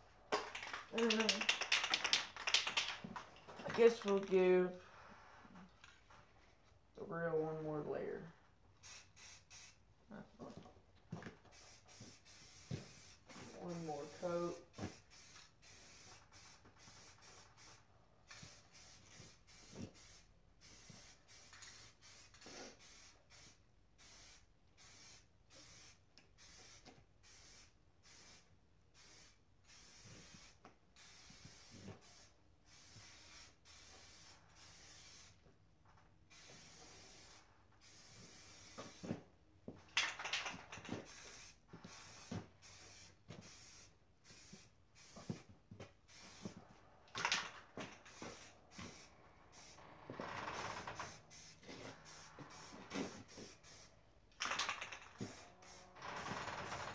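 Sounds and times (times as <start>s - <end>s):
spray-paint can hissing in bursts: 0.4s - 3.0s, 3.6s - 4.3s, 8.8s - 9.8s, 11.4s - 35.4s, 36.3s - 39.2s, 40.0s - 49.8s, 50.5s - 56.9s.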